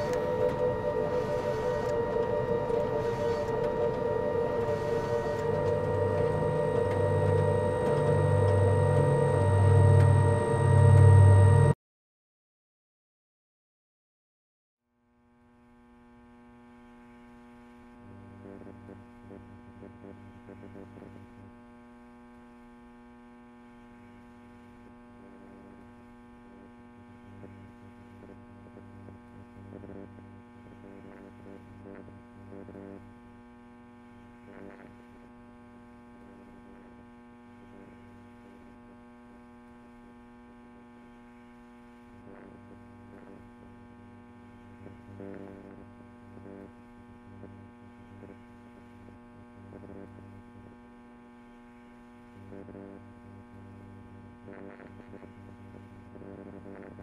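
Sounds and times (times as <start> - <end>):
low hum with overtones: 0.0 - 11.8, 15.2 - 57.0.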